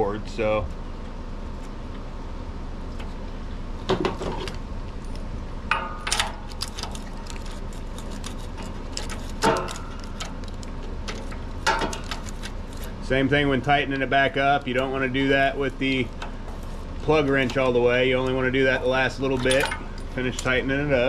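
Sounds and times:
steady low hum: 0:00.0 - 0:21.0
metal wrench clinking on engine: 0:05.7 - 0:10.5, 0:19.2 - 0:20.6.

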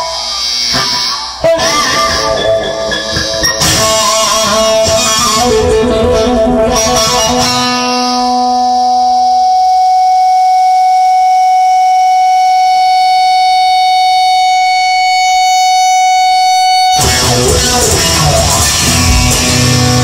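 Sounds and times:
rock music: 0:00.0 - 0:09.8, 0:14.5 - 0:20.0
sustained electric guitar note: 0:00.0 - 0:20.0.

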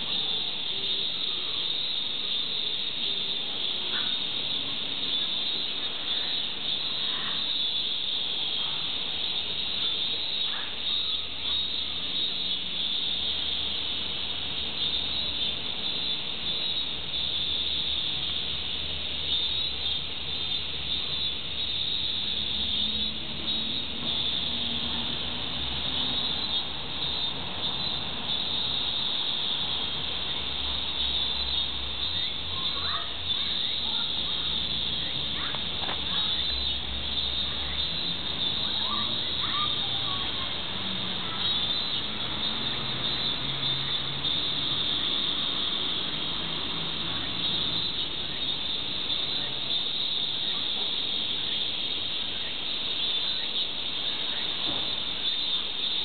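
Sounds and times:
insect chorus buzzing: 0:00.0 - 0:56.0.

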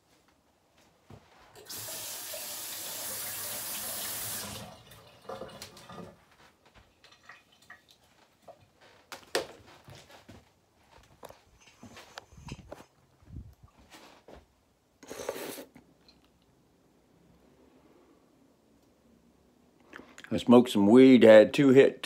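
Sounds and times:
faucet running: 0:01.6 - 0:06.1.

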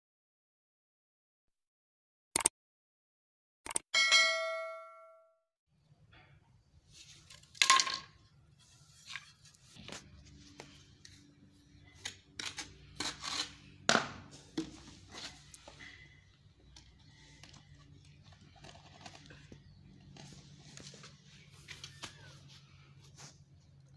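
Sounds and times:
bright bell-like chime: 0:04.0 - 0:05.3
trowel scraping ceramic tile: 0:11.8 - 0:13.8.

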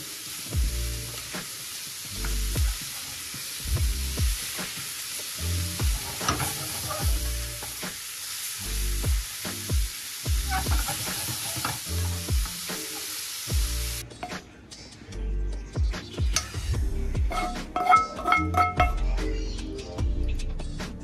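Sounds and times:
food sizzling in a pan: 0:00.0 - 0:14.9, 0:16.1 - 0:19.4
background music with beat: 0:00.4 - 0:21.0
spatula scraping pan: 0:05.8 - 0:07.3, 0:10.4 - 0:12.2, 0:17.3 - 0:19.0.

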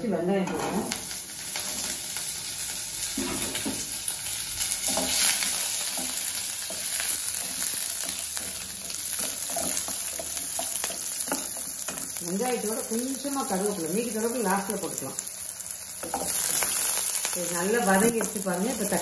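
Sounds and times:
shallots sizzling in oil: 0:00.5 - 0:19.0
spatula scraping and tapping pan: 0:03.1 - 0:04.0, 0:04.6 - 0:12.2, 0:16.0 - 0:17.0.

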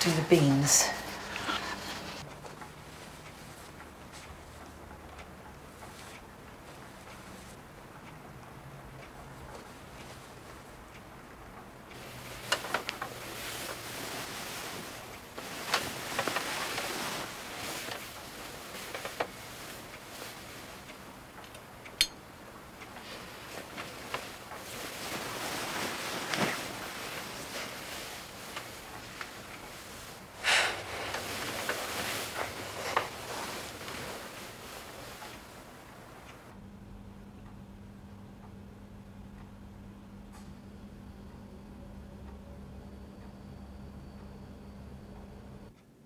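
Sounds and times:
bedding rustling: 0:00.0 - 0:36.5.

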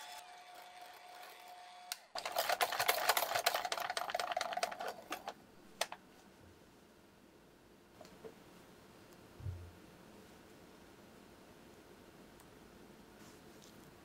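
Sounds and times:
hand mixer whisk rattling: 0:02.2 - 0:05.9.

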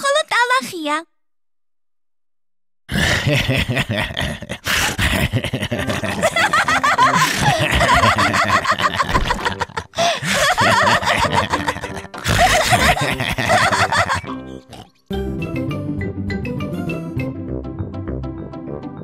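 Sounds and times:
cartoon characters laughing: 0:03.0 - 0:14.4.

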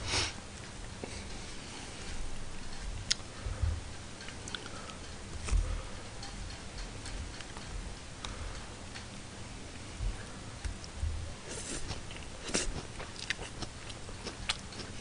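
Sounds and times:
soft low thumps: 0:02.2 - 0:04.0, 0:10.0 - 0:11.4.

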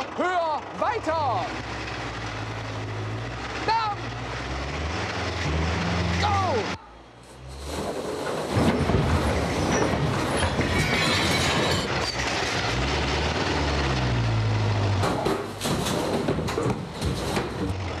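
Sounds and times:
tractor engine under load: 0:00.0 - 0:18.0
sharp knocks: 0:15.0 - 0:17.8.

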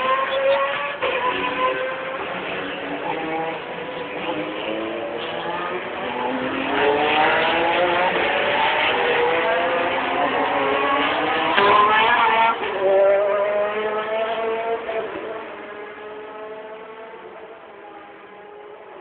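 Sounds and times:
race car engines accelerating: 0:00.0 - 0:19.0.

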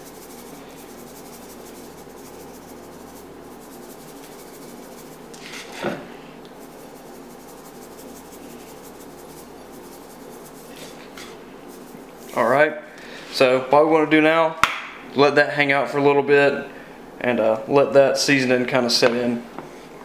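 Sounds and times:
salt shaken onto meat: 0:00.0 - 0:05.6, 0:06.6 - 0:12.5.

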